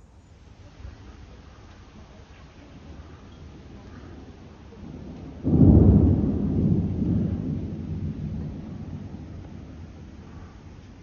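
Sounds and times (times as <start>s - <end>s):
thunder clap and rumble: 2.7s - 11.0s.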